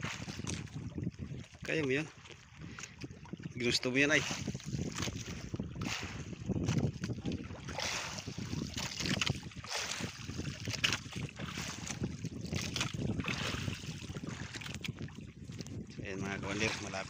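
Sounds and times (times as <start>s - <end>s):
water lapping against boat: 0.0s - 17.0s
wind gusting on microphone: 0.0s - 17.0s.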